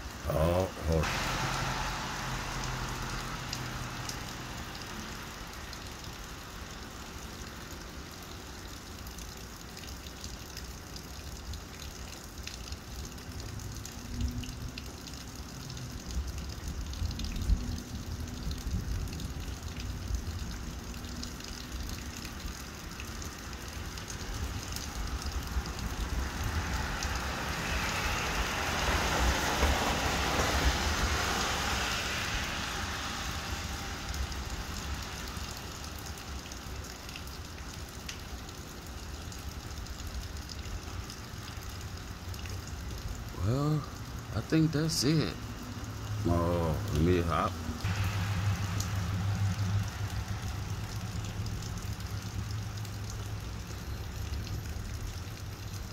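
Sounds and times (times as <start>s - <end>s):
steady rain: 0.0s - 55.9s
rushing hiss: 0.9s - 4.6s, 26.8s - 35.6s, 47.9s - 51.2s
low rumble: 47.6s - 52.9s.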